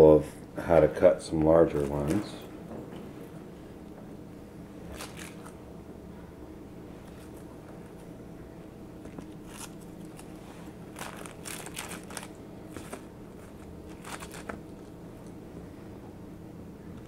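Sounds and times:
granola bars crackling and crunching: 4.9s - 5.5s, 9.1s - 15.0s.

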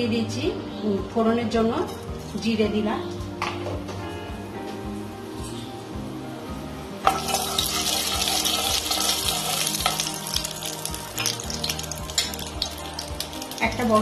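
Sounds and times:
seeds sizzling in hot oil: 7.0s - 14.0s.

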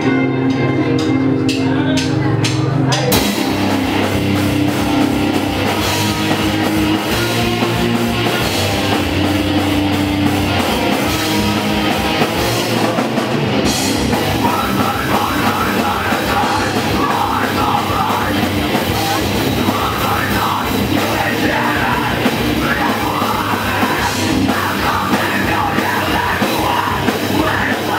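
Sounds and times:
heavy rock band playing: 0.0s - 27.9s
person singing: 14.3s - 27.9s.

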